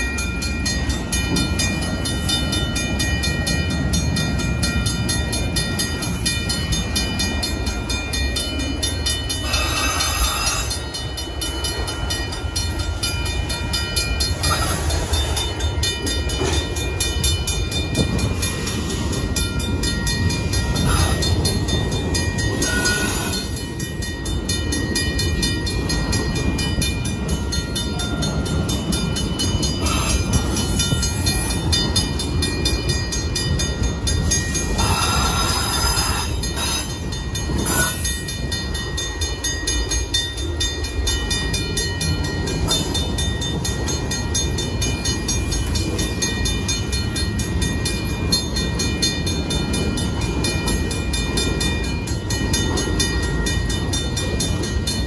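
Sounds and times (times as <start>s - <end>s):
crossing warning bell ringing: 0.0s - 55.0s
train wheels rumbling on rails: 0.0s - 55.0s
high metallic squeals: 9.4s - 10.9s.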